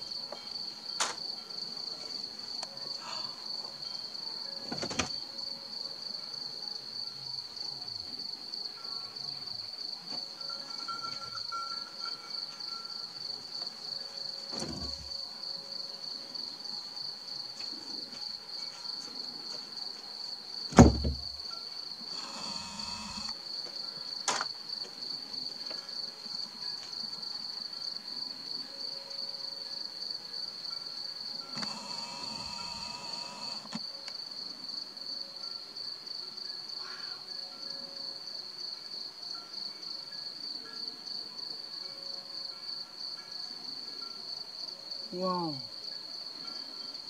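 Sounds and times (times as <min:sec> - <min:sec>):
crickets chirring: 0:00.0 - 0:47.0
sharp knock: 0:20.8 - 0:21.2.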